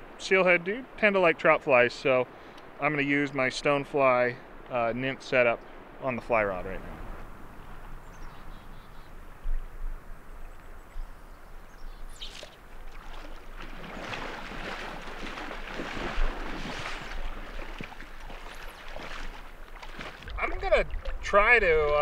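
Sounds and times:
river water flowing: 0.0s - 22.0s
legs splashing through water: 12.0s - 22.0s.

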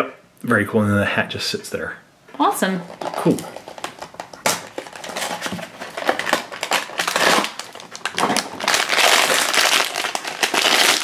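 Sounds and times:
cardboard packaging rustling: 2.8s - 11.0s
foil wrapper crinkling: 2.8s - 11.0s.

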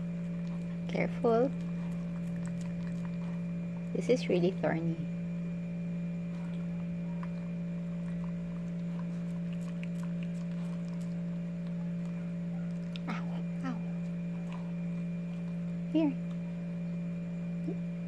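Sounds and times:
low electrical hum: 0.0s - 18.0s
dog licking and nibbling: 0.2s - 4.6s, 6.2s - 13.3s.

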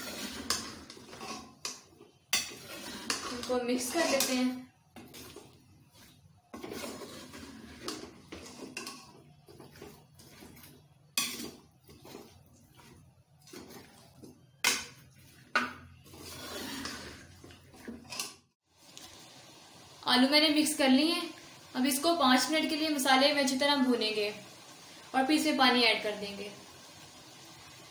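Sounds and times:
spatula scraping cooking pot: 0.0s - 18.4s.

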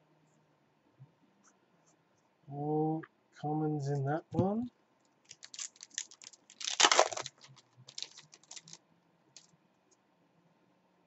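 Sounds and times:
cards clicking: 5.3s - 8.8s
foil pack crinkling: 5.3s - 8.8s
foil pack ripping: 5.3s - 8.8s.

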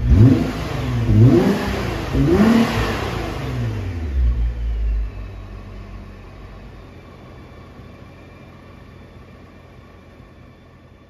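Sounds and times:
car engine revving: 0.0s - 6.4s
car engine idling: 0.0s - 11.0s.

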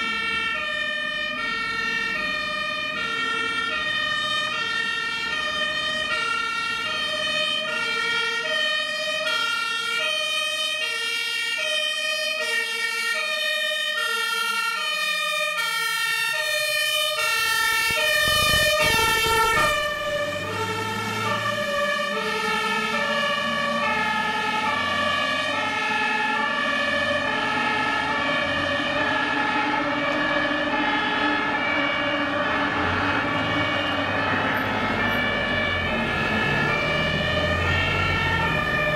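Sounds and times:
two-tone fire engine siren: 0.0s - 38.9s
truck engine rumble: 15.9s - 38.9s.

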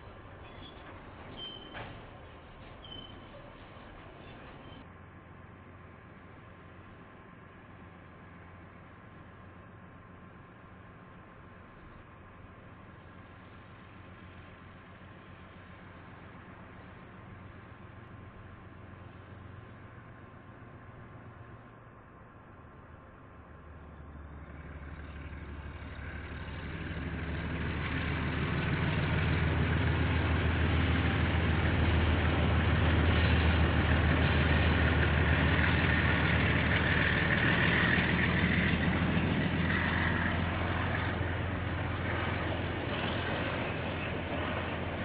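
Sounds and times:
diesel locomotive engine drone: 0.0s - 45.0s
passing train rushing noise: 13.1s - 45.0s.

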